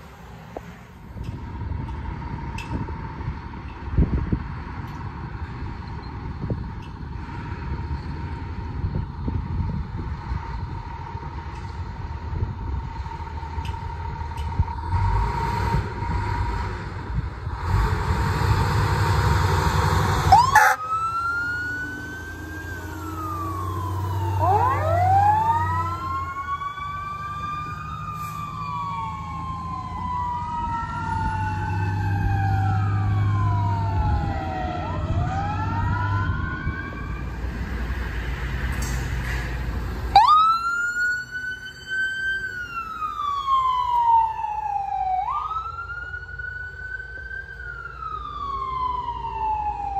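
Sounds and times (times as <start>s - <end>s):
truck engine rumble: 0.0s - 49.9s
fire engine sirens wailing: 1.0s - 49.9s
ambulance siren wailing: 19.4s - 37.4s, 40.1s - 49.9s.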